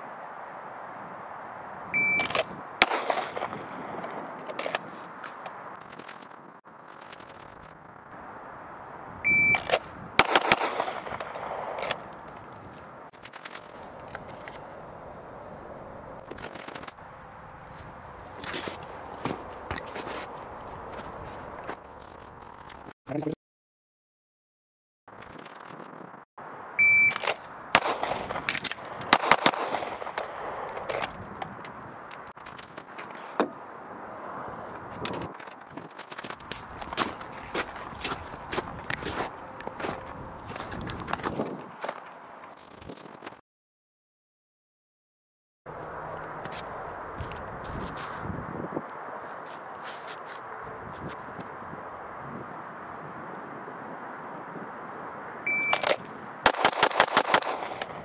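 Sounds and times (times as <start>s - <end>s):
shot timer beep: 2.0s - 2.3s, 9.3s - 9.6s, 26.8s - 27.2s, 55.5s - 55.8s
pistol shots with echo: 2.2s - 4.0s, 10.2s - 11.9s, 27.7s - 30.7s, 56.5s - 58.0s
footsteps crunching in snow: 2.5s - 7.8s, 10.7s - 14.8s, 16.2s - 22.9s, 30.0s - 33.6s, 34.6s - 43.4s, 45.7s - 51.4s.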